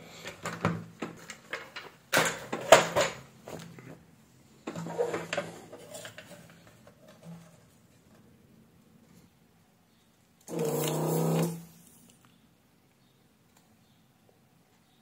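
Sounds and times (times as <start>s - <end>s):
plastic parts clattering: 0.1s - 4.0s, 4.6s - 8.2s.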